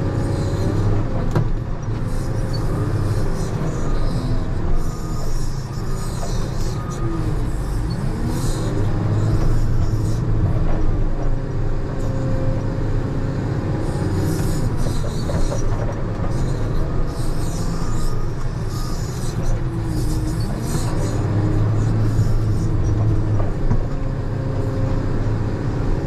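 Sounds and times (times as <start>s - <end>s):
diesel engine running under load: 0.0s - 26.0s
short squeals sliding in pitch: 2.1s - 10.3s, 16.4s - 23.2s.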